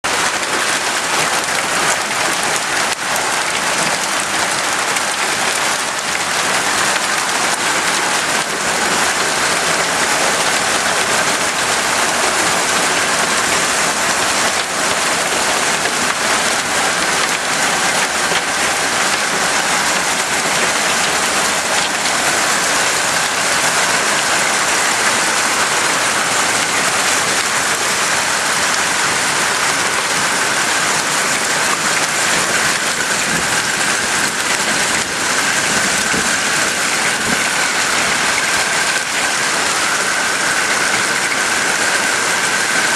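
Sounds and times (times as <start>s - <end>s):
heavy hail falling: 0.1s - 42.9s.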